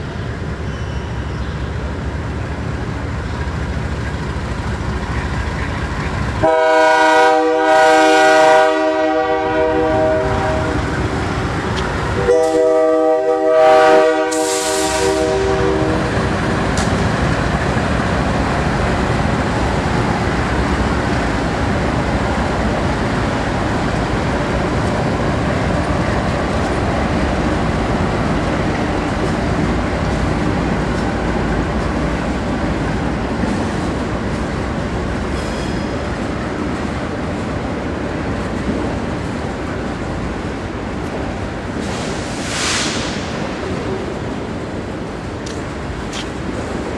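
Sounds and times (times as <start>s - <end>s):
train rumbling past: 0.0s - 46.9s
diesel locomotive air horn: 6.4s - 10.9s, 12.2s - 16.3s.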